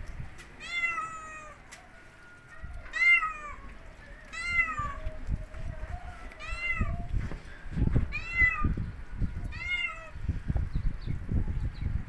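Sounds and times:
cat meowing: 0:00.6 - 0:01.6, 0:02.8 - 0:05.2, 0:06.4 - 0:07.1, 0:08.1 - 0:08.8, 0:09.5 - 0:10.2.

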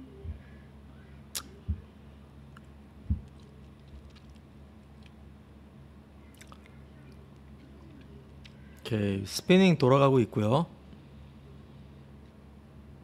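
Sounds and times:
faint steady hum: 0:00.0 - 0:13.0
dull low thumps: 0:03.0 - 0:03.3.

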